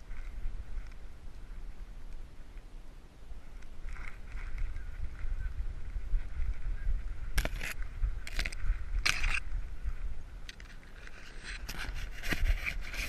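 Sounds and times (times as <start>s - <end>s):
wind rumble on microphone: 0.0s - 13.0s
brush scraping and crackling: 10.4s - 13.0s.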